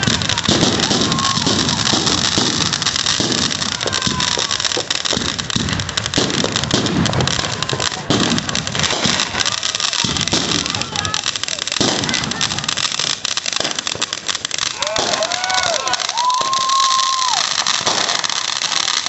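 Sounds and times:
firework shells bursting with thumps: 0.0s - 11.2s
fireworks fountain hissing and crackling: 0.0s - 19.0s.

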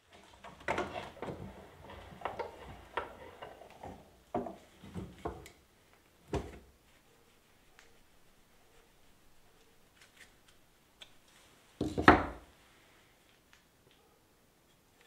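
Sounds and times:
wooden knocks and clicks: 0.4s - 5.6s.

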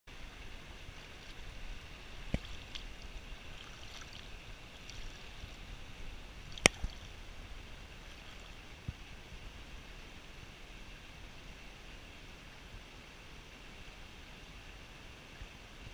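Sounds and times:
water sloshing: 0.7s - 8.7s
waders shifting in water: 0.9s - 7.2s.

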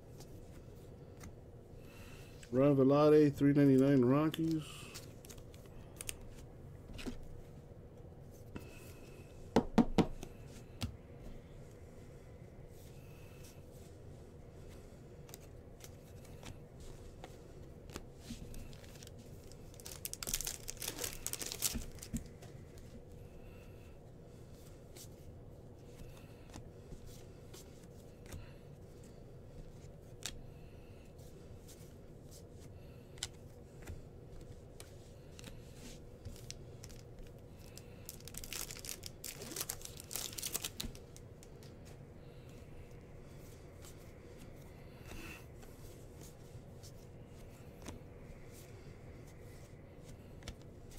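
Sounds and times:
wrappers crinkling: 17.9s - 22.8s, 36.2s - 41.6s
card packs tearing open: 18.7s - 22.2s, 37.6s - 41.0s
soft clicks of cards: 33.1s - 35.6s.

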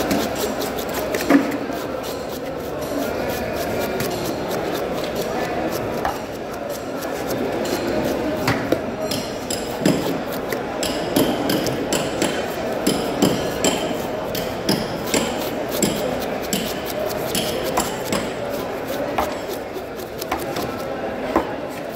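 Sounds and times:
knife chopping on wooden block: 8.6s - 18.4s.

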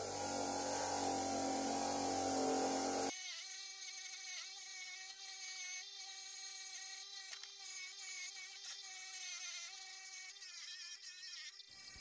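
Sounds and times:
wire wheel grinder on steel: 0.0s - 3.1s.

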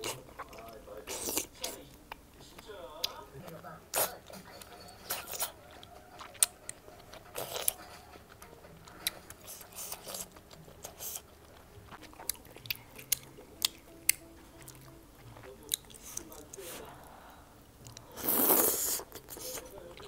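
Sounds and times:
person biting and chewing food: 0.0s - 4.2s, 5.1s - 16.8s
faint background music: 0.0s - 20.0s.

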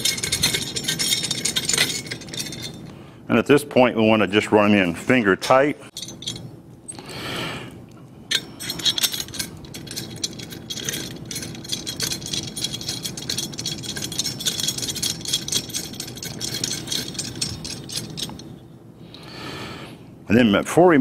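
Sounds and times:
wrench and bolts rattling: 0.0s - 2.9s, 5.9s - 7.0s, 8.3s - 18.6s
low steady hum: 0.0s - 21.0s.

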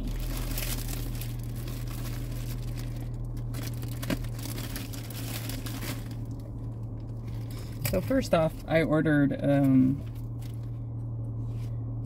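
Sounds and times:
plastic packaging crinkling: 0.0s - 8.2s
steady low hum: 0.0s - 12.0s.

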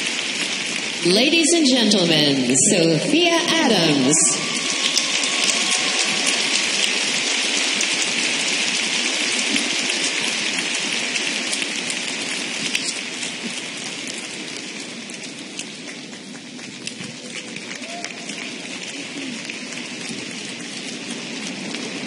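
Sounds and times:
audience applauding: 3.4s - 13.0s, 15.4s - 22.0s.

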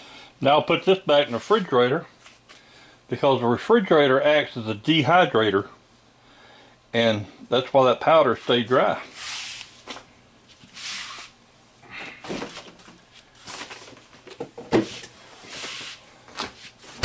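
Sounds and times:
soft rustling and handling: 0.8s - 2.7s, 8.1s - 11.4s.

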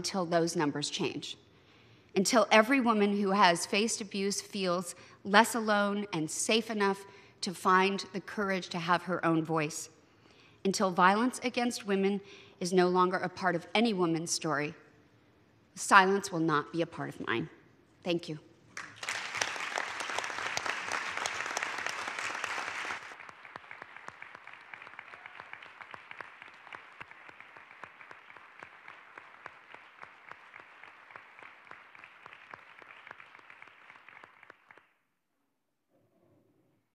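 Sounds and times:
audience applauding: 18.8s - 34.9s.

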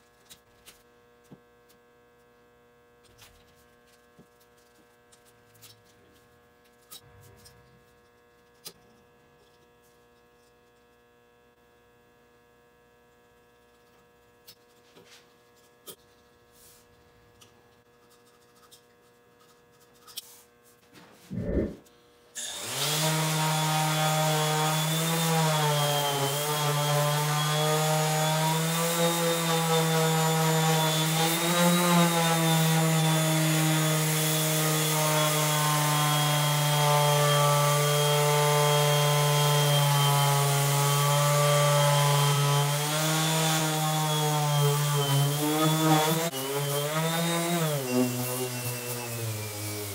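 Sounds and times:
orbital sander sanding wood: 22.4s - 49.9s.

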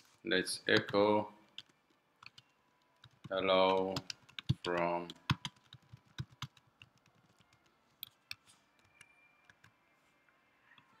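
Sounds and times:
keyboard keys clicking: 1.6s - 9.7s.

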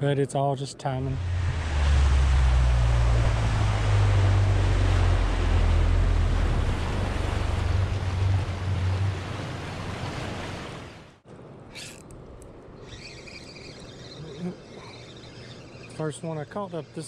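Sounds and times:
heavy low rumble: 1.0s - 9.9s
rough water rushing and churning: 1.0s - 17.0s.

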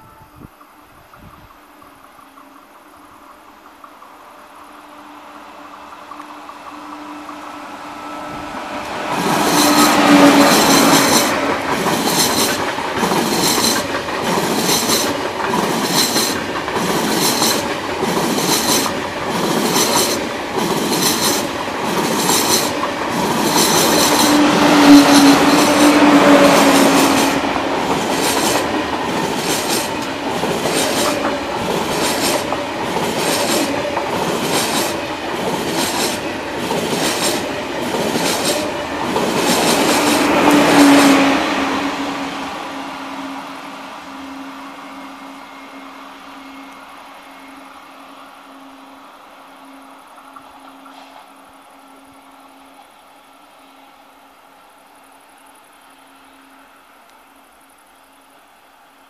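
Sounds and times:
high-speed train rushing past: 0.0s - 58.4s
wheels clacking over rails: 8.6s - 41.8s.

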